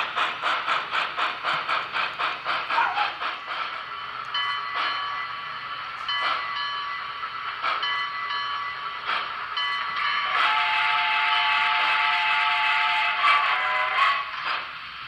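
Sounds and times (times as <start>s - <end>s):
model train steam hiss and chuff: 0.0s - 15.0s
steam whistle: 10.2s - 14.4s.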